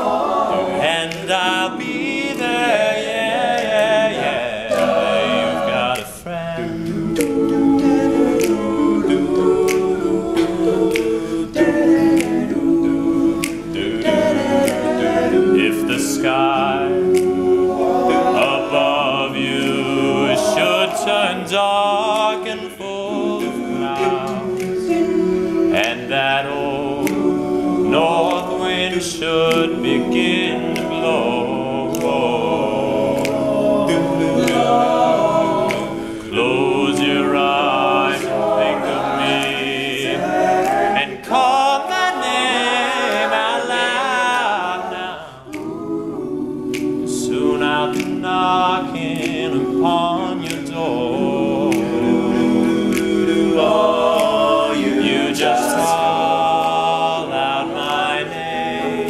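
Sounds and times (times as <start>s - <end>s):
male a cappella group singing: 0.0s - 59.0s.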